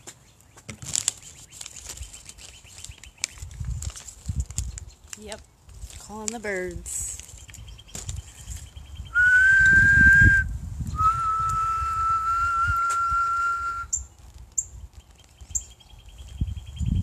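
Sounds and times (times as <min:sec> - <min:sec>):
person whistling long notes: 0:09.1 - 0:14.1.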